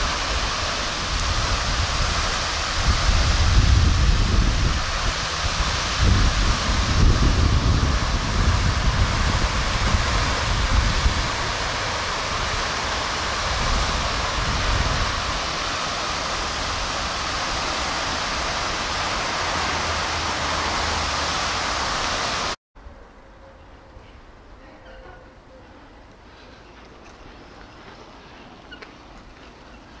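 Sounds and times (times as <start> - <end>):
wind buffeting microphone: 0.0 - 20.6.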